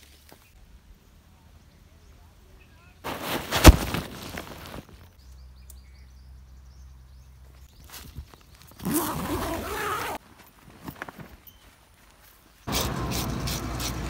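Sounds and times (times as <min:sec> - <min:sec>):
zipper being pulled: 0:08.7 - 0:10.2.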